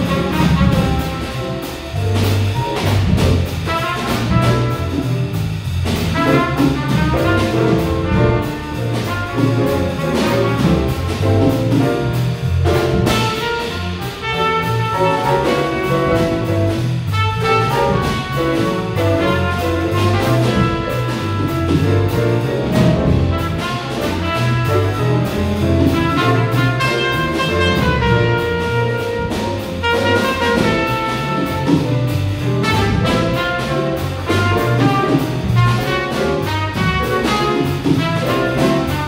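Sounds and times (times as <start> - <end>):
trumpet lead: 0.0 - 5.4, 6.0 - 39.0
bass guitar: 0.0 - 39.0
drum kit with cymbals: 0.0 - 39.0
grand piano: 0.0 - 39.0.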